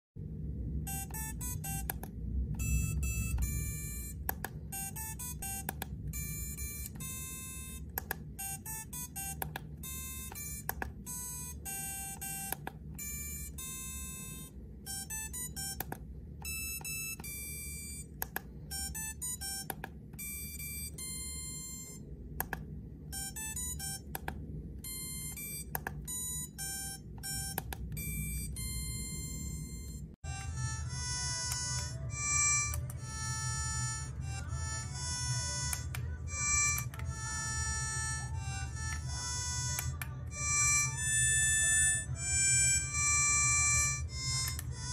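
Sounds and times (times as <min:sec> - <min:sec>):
steady low hum: 0:00.2 - 0:44.9
electronic beeping notes: 0:00.9 - 0:18.1, 0:24.8 - 0:44.9.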